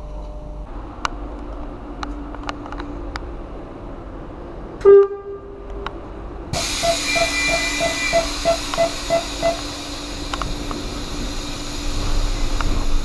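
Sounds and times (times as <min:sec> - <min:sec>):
hiss: 0:06.6 - 0:13.0.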